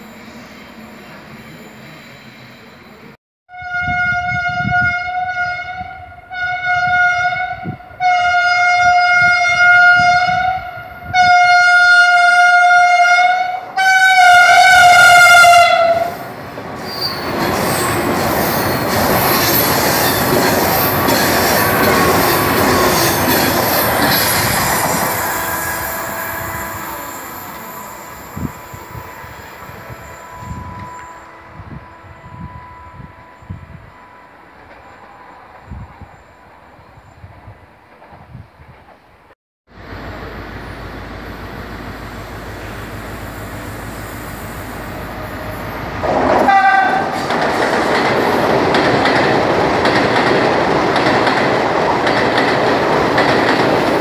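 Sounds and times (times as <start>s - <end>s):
train horn blasts: 3.5s - 16.2s, 24.9s - 28.5s, 29.7s - 36.5s, 44.9s - 47.2s
train rushing past: 8.8s - 39.1s, 39.7s - 54.0s.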